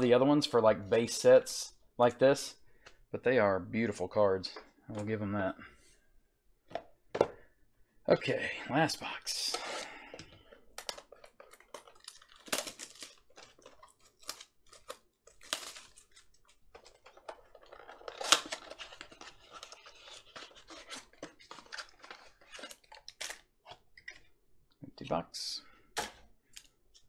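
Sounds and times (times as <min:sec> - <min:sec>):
shrink wrap being torn: 0:10.8 - 0:23.5.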